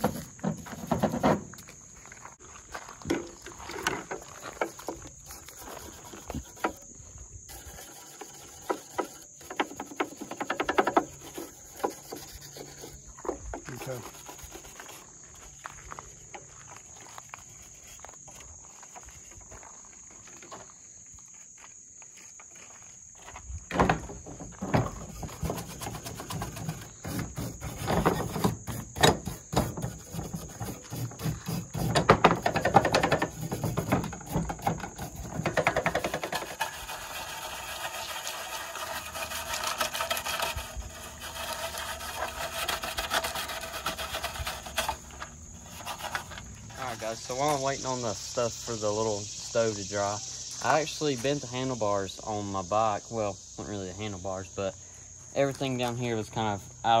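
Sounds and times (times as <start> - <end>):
brush scrubbing metal grate: 0.0 - 1.4, 3.9 - 6.9, 7.5 - 15.2, 24.8 - 49.7
insects chirping: 0.0 - 57.0.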